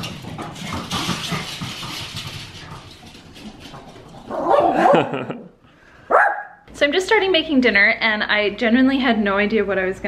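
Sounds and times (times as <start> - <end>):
dog claws clicking on floor: 0.0 - 4.3
dog barking: 4.3 - 5.1, 6.1 - 6.6.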